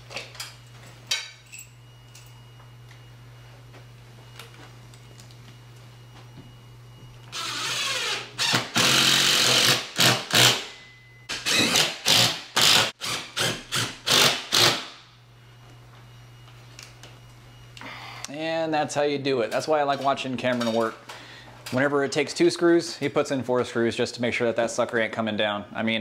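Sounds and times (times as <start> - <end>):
cordless drill driving screws: 7.4 - 10.6, 11.3 - 14.9.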